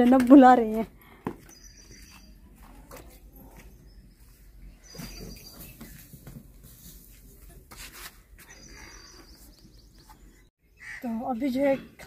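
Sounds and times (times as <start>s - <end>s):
birds chirping: 1.0s - 6.6s, 8.3s - 12.0s.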